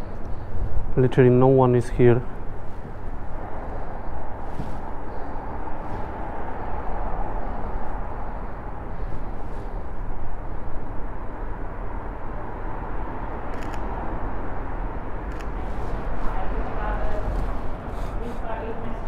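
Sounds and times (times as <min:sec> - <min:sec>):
wind rumbling on microphone: 0:00.0 - 0:01.0
outdoor city ambience: 0:00.0 - 0:19.0
camera shutter clicking: 0:13.5 - 0:13.8.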